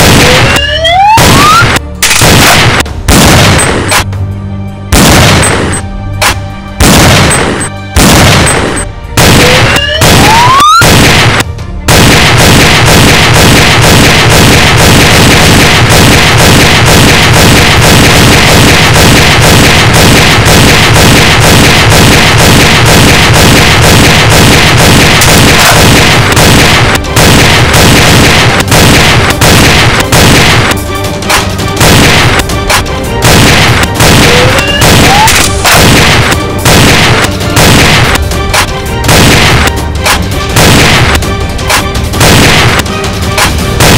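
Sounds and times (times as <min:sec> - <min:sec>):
toy gun blasts: 0:00.0 - 0:04.0, 0:06.8 - 0:30.8, 0:33.2 - 0:38.2, 0:39.1 - 0:39.7
gunfire and explosion effects: 0:00.0 - 0:04.2, 0:04.9 - 0:43.9
background music: 0:00.0 - 0:43.9.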